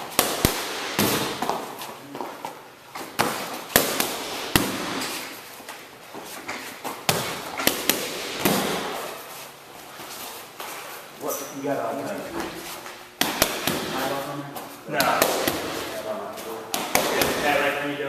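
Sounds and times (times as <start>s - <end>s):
punches slapping focus mitts: 0.0s - 1.7s, 3.0s - 5.3s, 7.0s - 9.1s, 13.2s - 14.1s, 14.9s - 16.0s, 16.7s - 17.7s.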